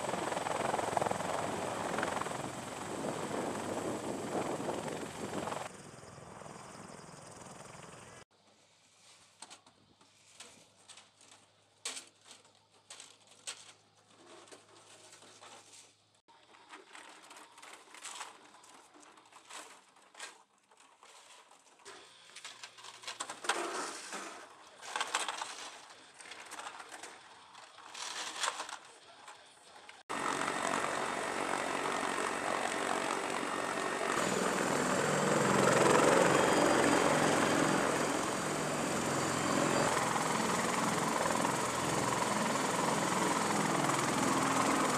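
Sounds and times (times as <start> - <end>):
helicopter engines and rotors: 0.0 - 8.2, 30.1 - 44.9.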